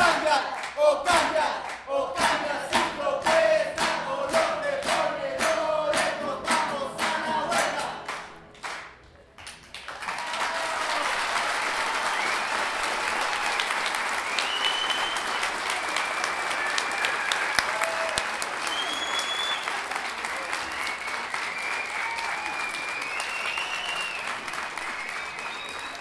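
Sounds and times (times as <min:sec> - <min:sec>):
voices chanting in unison: 0:00.0 - 0:08.0
audience applause: 0:04.9 - 0:26.0.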